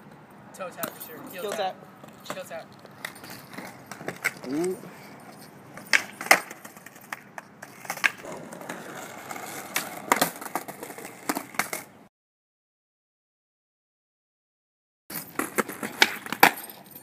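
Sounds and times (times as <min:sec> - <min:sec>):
skateboard wheels rolling: 0:01.5 - 0:04.5, 0:05.7 - 0:12.0, 0:15.2 - 0:16.6
skateboard clacks: 0:05.8 - 0:11.9, 0:15.2 - 0:16.6.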